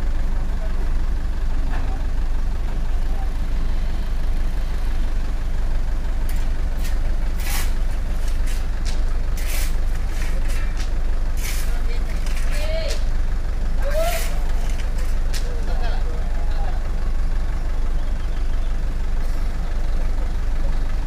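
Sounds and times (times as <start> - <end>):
truck engine low rumble: 0.0 - 21.0.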